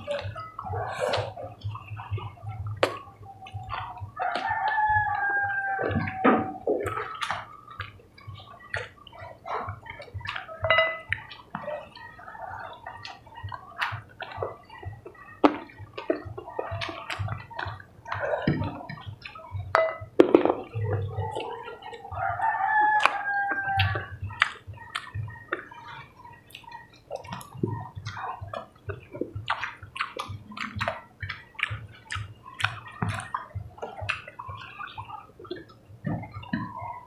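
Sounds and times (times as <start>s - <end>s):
people chewing food: 0.0s - 37.0s
rooster crowing: 4.2s - 7.2s, 21.0s - 24.1s.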